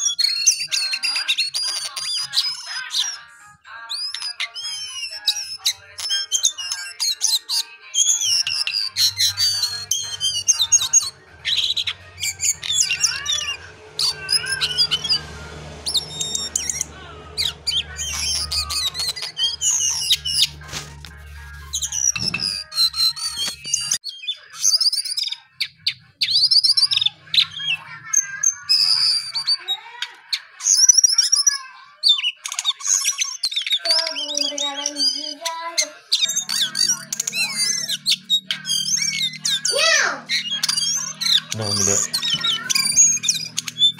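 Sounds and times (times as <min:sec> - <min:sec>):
songbird singing: 0:00.0 - 0:43.9.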